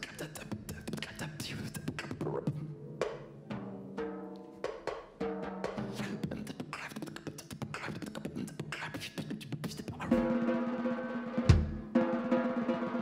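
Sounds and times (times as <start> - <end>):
kick drum hits: 11.5 - 11.9.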